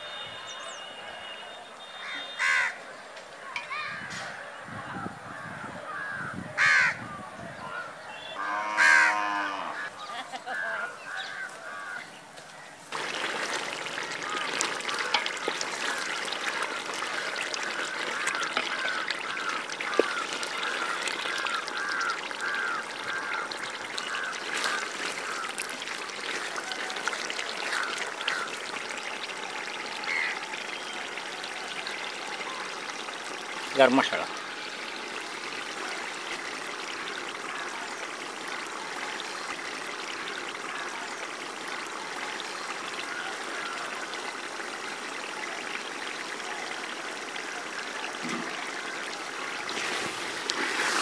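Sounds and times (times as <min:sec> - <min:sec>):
loud honking call: 0:00.0 - 0:02.8, 0:08.1 - 0:09.9
curry bubbling at a simmer: 0:12.9 - 0:51.0.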